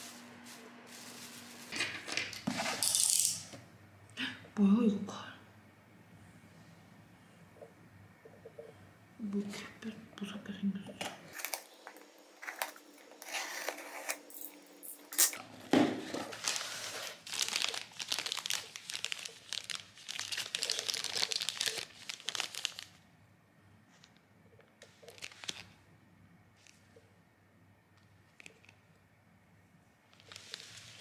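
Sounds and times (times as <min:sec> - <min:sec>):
cardboard and plastic rustling: 0:15.6 - 0:23.0, 0:24.9 - 0:25.8, 0:30.1 - 0:31.0.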